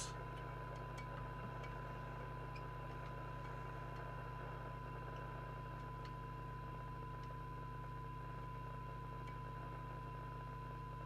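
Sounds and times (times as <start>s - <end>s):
faint ticks: 0.2s - 6.3s.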